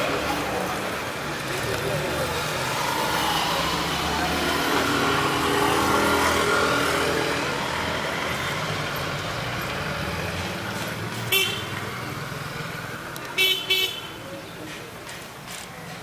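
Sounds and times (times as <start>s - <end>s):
road traffic hum: 0.0s - 16.0s.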